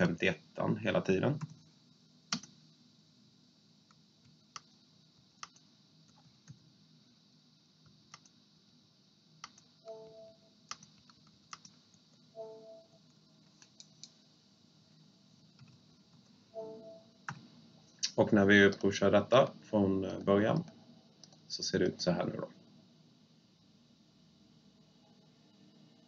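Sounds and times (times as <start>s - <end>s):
quiet room hum: 0.0s - 26.0s
short faint hum-like tone: 12.2s - 13.5s, 14.2s - 26.0s.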